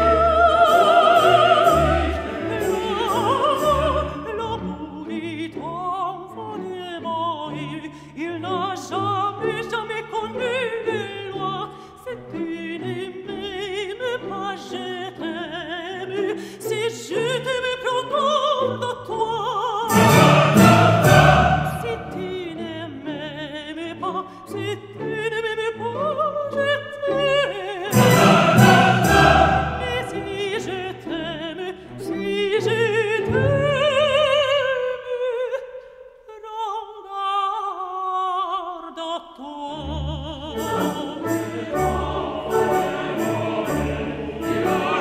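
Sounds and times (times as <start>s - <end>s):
classical singer with orchestra: 0.0s - 45.0s.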